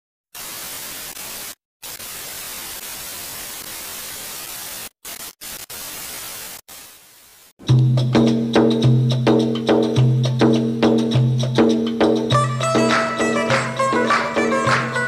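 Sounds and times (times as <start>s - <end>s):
television static hiss: 0.4s - 7.5s.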